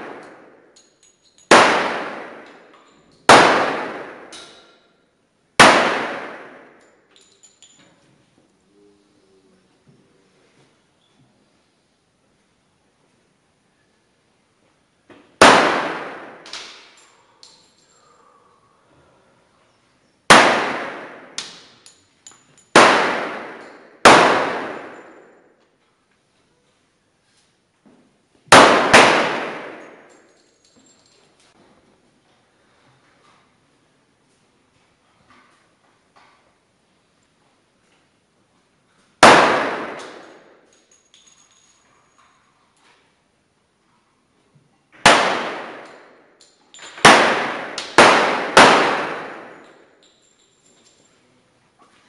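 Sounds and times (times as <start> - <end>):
pistol shots echoing: 0.0 - 0.8, 1.5 - 2.7, 3.3 - 4.6, 5.6 - 6.9, 15.4 - 17.0, 20.3 - 21.8, 22.7 - 25.5, 28.5 - 30.3, 39.2 - 40.7, 45.0 - 50.0.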